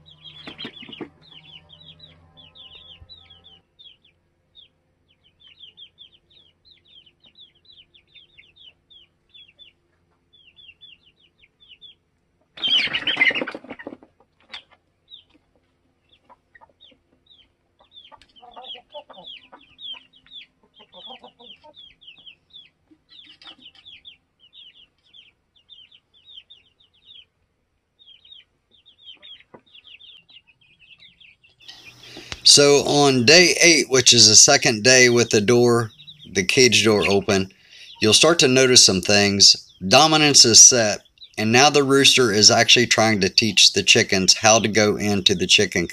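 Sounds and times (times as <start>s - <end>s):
chickens clucking: 0.0s - 45.9s
chicks peeping: 0.0s - 45.9s
wings flapping: 12.6s - 14.6s
chicken squawk: 12.6s - 14.8s, 17.8s - 27.2s, 34.6s - 38.1s.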